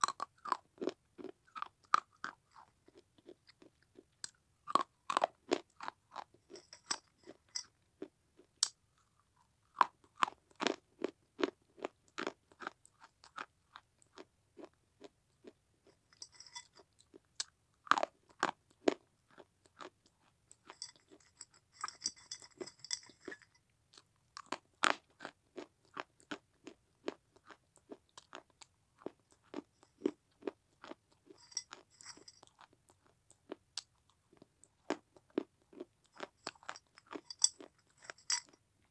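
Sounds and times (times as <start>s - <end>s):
crunching and chewing clay: 0.0s - 38.6s.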